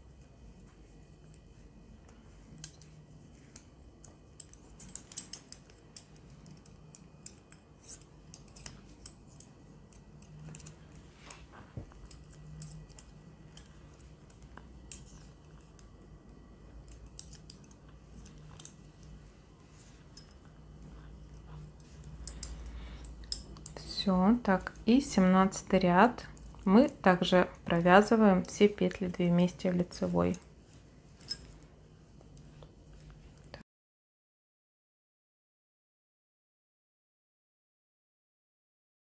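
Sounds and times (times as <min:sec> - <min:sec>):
faint low hum: 0:00.0 - 0:33.6
metal knitting needles clicking: 0:02.5 - 0:19.2, 0:20.1 - 0:30.5.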